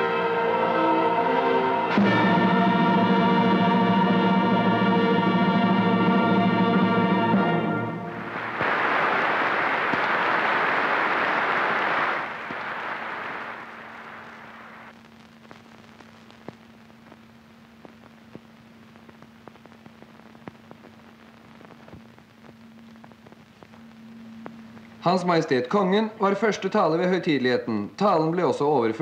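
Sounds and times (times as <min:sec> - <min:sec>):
orchestral music: 0:00.0 - 0:08.3
steady low hum: 0:01.9 - 0:28.9
audience applauding: 0:08.1 - 0:14.9
faint clicks: 0:15.0 - 0:25.0.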